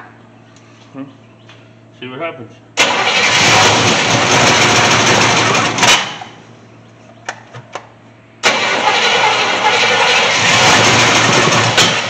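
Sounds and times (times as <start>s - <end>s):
truck engine cranking and catching: 2.8s - 6.4s, 8.4s - 12.0s.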